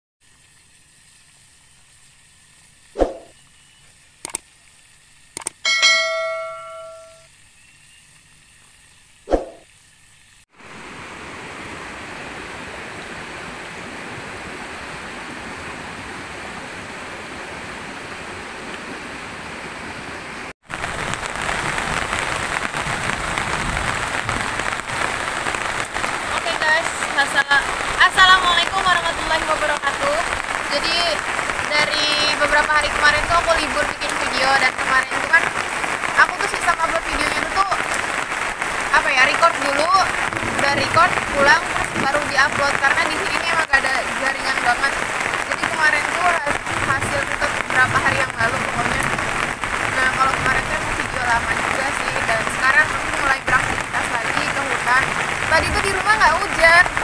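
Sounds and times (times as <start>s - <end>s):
faint hiss: 0.2s - 5.5s
heavy rain: 4.2s - 7.2s, 10.3s - 57.0s
ringing bell-like ding: 5.6s - 7.3s
sharp hits: 5.7s - 7.2s.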